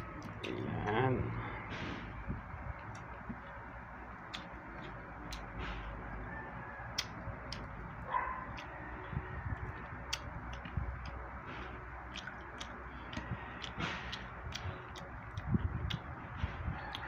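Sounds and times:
chewing: 4.2 - 6.0, 6.9 - 9.0, 9.6 - 17.0.

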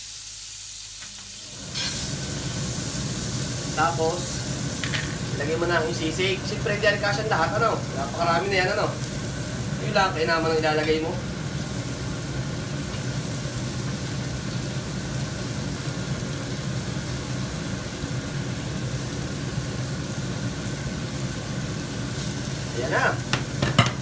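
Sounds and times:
meat sizzling on hot plate: 0.0 - 24.0
spatula scraping plate: 1.7 - 2.1.

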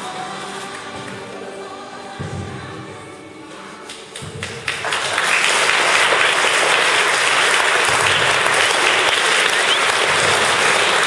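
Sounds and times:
congregation applauding: 4.1 - 11.0.

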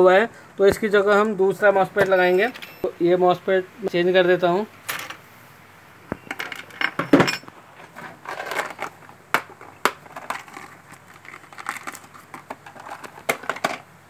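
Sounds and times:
plastic parts rattling: 6.2 - 13.9.

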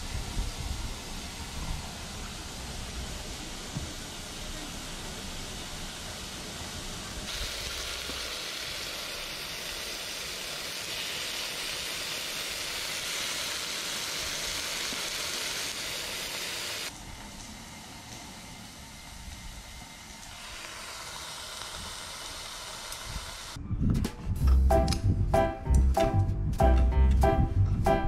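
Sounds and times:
beef sizzling in a frying pan: 7.3 - 16.9, 18.4 - 23.6.

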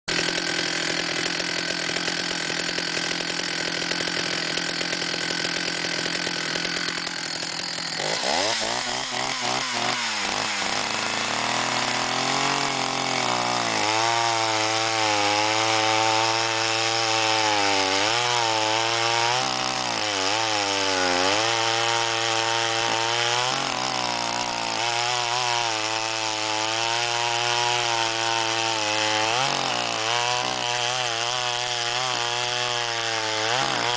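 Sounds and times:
chainsaw cutting log: 0.1 - 33.9.

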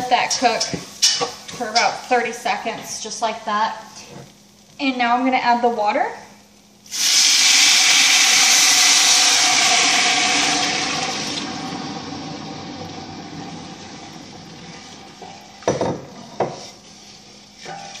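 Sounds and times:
water hissing in hot pan: 6.8 - 18.0.

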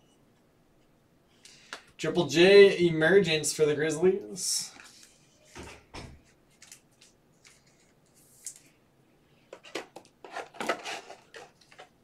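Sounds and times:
trading cards clicking and rustling: 6.5 - 8.8.

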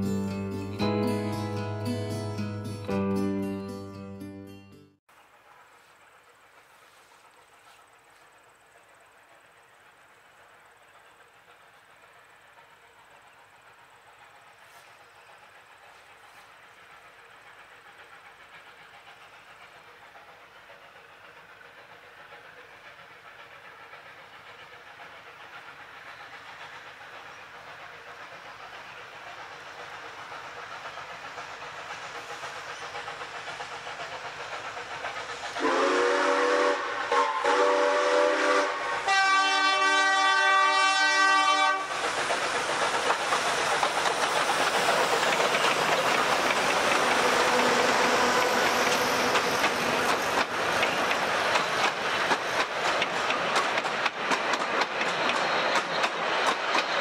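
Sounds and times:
steam locomotive running: 0.0 - 4.0, 5.1 - 57.0
train rail noise: 0.0 - 4.0, 5.1 - 57.0
steam whistle blasts: 35.6 - 41.9.

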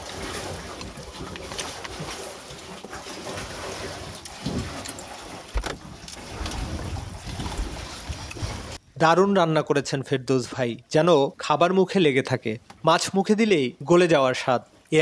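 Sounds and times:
sea noise: 0.0 - 8.8.

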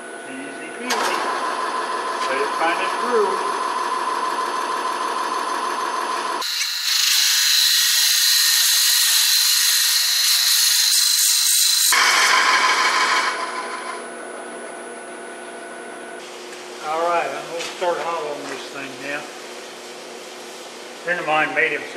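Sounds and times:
wood lathe whine: 0.0 - 14.4
tool cutting hiss: 6.4 - 14.0.

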